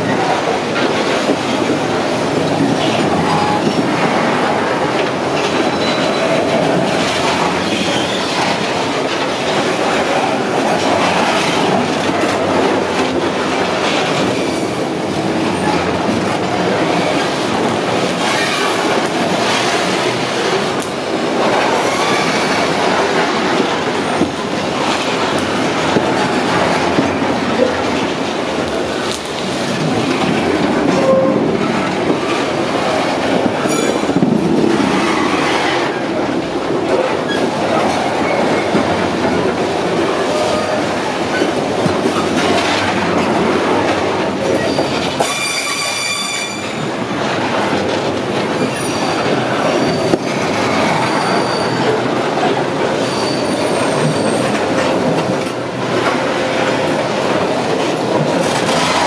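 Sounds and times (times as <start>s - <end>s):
train wheels running on rails: 0.0s - 59.0s
high-pitched wheel squeals: 44.6s - 46.8s.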